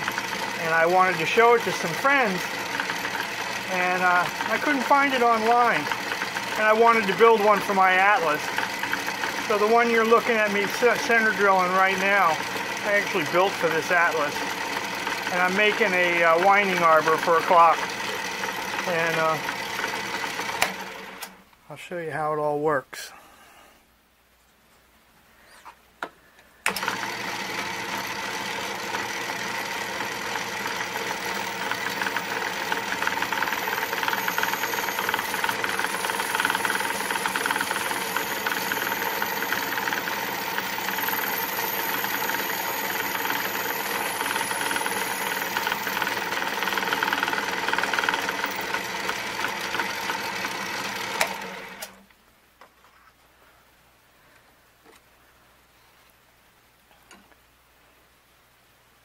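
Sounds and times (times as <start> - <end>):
drill boring into brass: 0.0 - 20.8, 26.7 - 51.5
lathe motor running: 0.0 - 21.3, 26.7 - 52.0.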